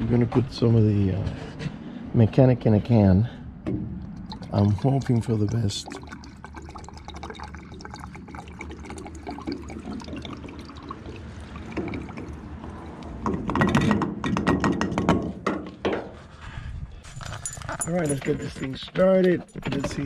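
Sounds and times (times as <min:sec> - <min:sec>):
liquid gurgling and glugging: 0:04.0 - 0:13.4.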